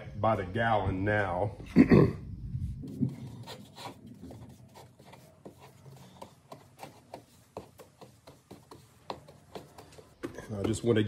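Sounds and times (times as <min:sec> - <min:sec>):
paintbrush brushing on wood: 0:02.8 - 0:11.0.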